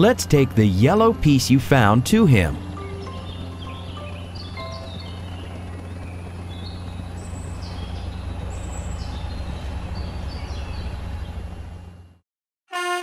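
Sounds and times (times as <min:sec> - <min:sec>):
birds chirping: 0:00.0 - 0:12.0
low motor hum: 0:00.0 - 0:12.2
cartoon truck horn honking: 0:12.7 - 0:13.0.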